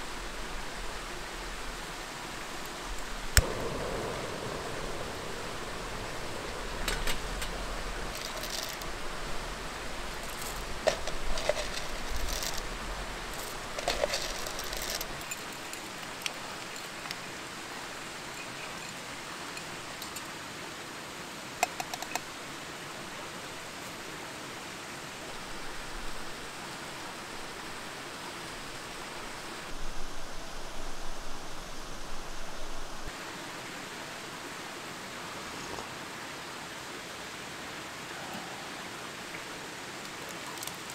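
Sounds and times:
steady hiss: 0.0s - 40.9s
water pouring from kettle: 6.8s - 8.9s, 13.3s - 17.2s.

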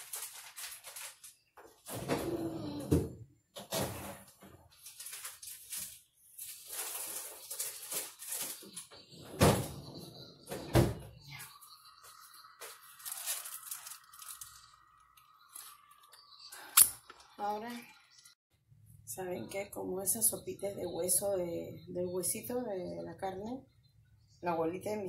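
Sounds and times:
items moved in freezer drawer: 3.6s - 10.7s.

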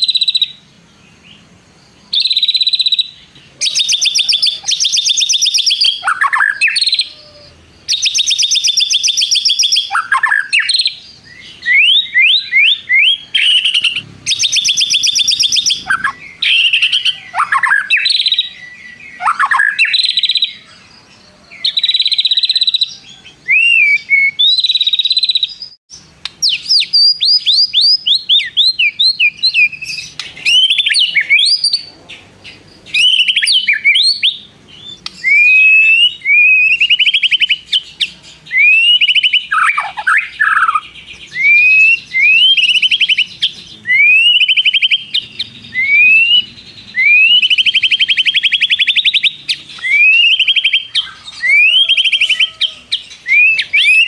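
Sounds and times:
bird singing trills and whistles: 0.0s - 54.0s.

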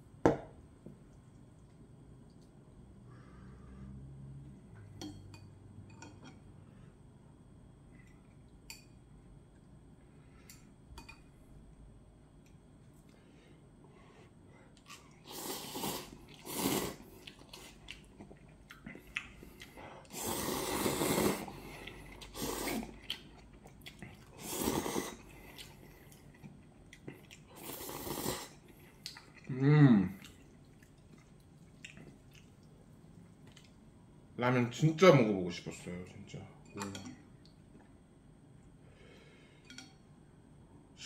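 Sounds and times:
soft chewing: 0.8s - 3.9s, 16.1s - 20.2s, 21.1s - 34.0s
noodles slurped: 14.8s - 26.4s, 27.0s - 29.4s.

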